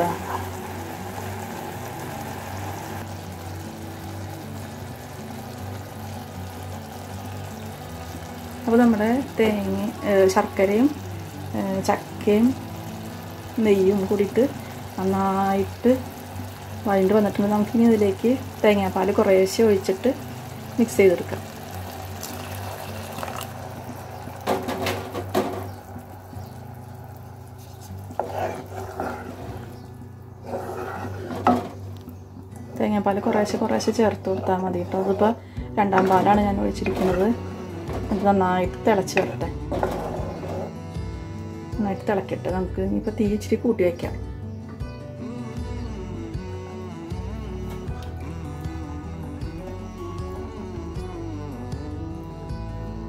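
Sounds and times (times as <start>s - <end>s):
soft background music: 0.0s - 53.0s
syrup bubbling in pan: 20.2s - 24.8s, 25.4s - 31.6s.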